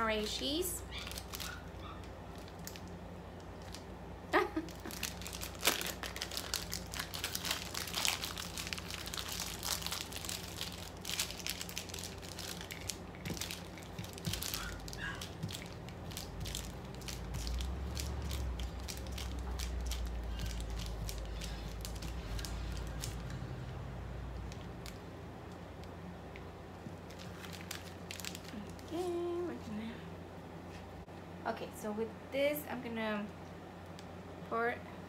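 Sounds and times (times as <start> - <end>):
plastic wrapping crinkling: 0.2 - 23.8, 26.8 - 29.6.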